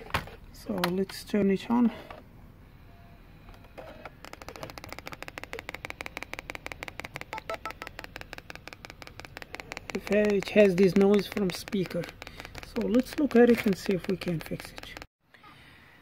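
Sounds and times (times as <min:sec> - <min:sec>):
laptop speaker clicking: 0:03.5 - 0:15.1.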